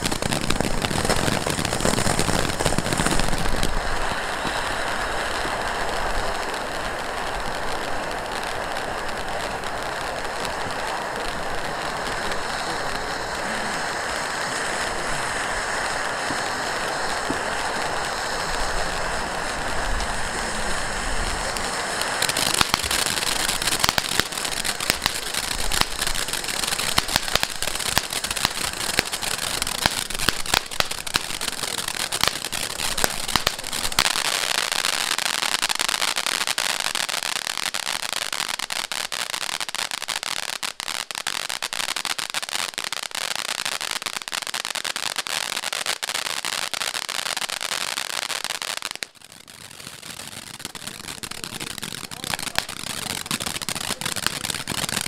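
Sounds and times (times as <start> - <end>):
firework hissing and crackling: 0.0 - 55.0.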